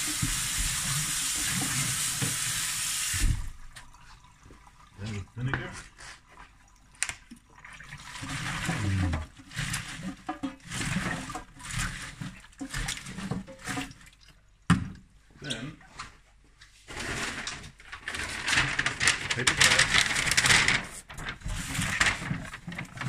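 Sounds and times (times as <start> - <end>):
water splashing and gurgling: 6.5 - 14.6.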